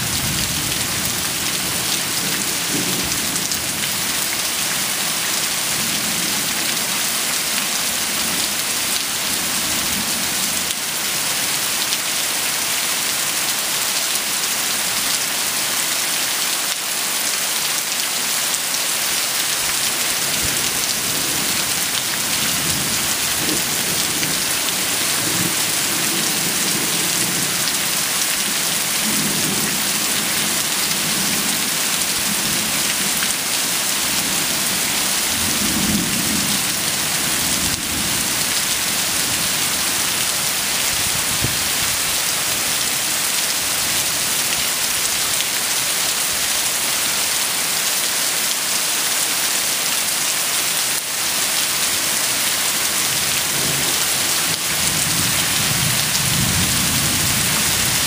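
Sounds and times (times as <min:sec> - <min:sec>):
heavy rain: 0:00.0 - 0:58.0
runoff splashing on concrete: 0:00.0 - 0:58.0.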